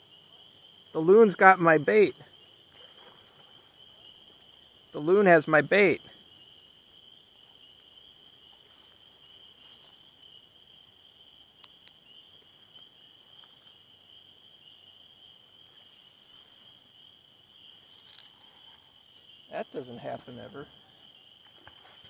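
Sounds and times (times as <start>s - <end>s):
crickets trilling: 0.0s - 22.0s.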